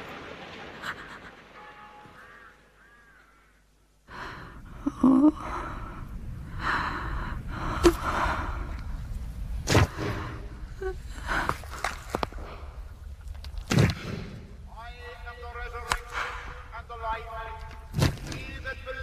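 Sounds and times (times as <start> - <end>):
person gasping and sobbing: 4.1 - 8.8.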